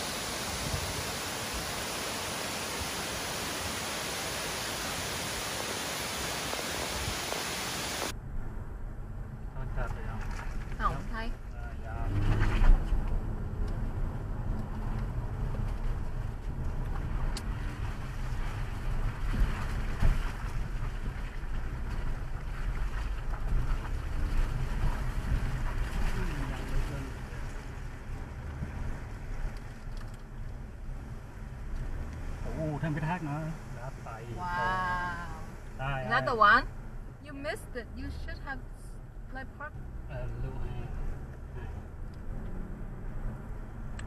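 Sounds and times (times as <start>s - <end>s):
wind noise: 0.0s - 2.0s, 12.1s - 30.0s
waterfall hissing: 0.0s - 8.1s
car road and engine rumble: 0.0s - 44.0s.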